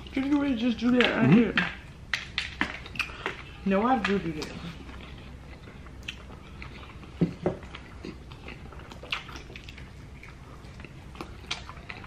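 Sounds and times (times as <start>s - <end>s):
biting and chewing crunchy food: 0.0s - 12.0s.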